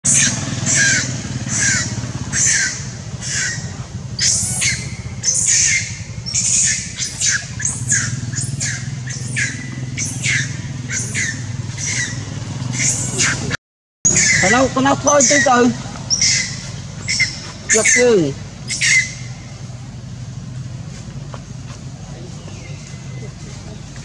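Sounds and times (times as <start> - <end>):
baby monkey screaming: 0.1 - 12.2, 12.8 - 19.4.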